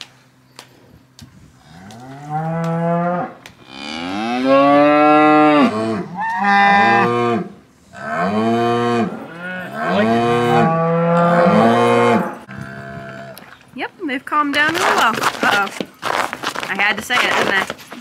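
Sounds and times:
cows mooing loudly: 1.6 - 13.5.

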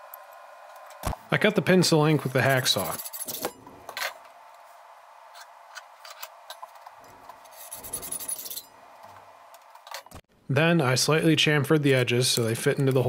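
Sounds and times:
hand file scraping steel: 2.4 - 3.5, 7.4 - 8.7.

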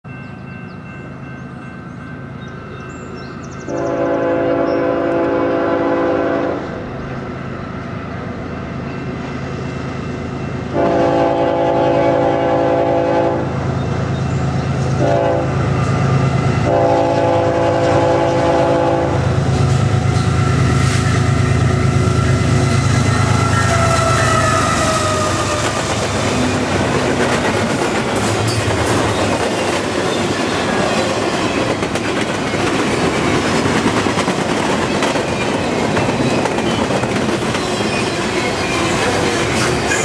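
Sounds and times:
diesel locomotive engine rumble: 0.1 - 40.0
train wheel noise: 2.3 - 40.0
train air horn blasts: 3.7 - 6.9, 10.7 - 13.6, 14.9 - 26.7.

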